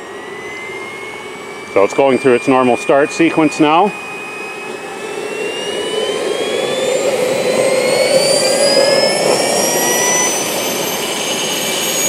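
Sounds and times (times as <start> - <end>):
turbine engine whine rising: 0.0 - 12.0
rushing noise: 3.7 - 12.0.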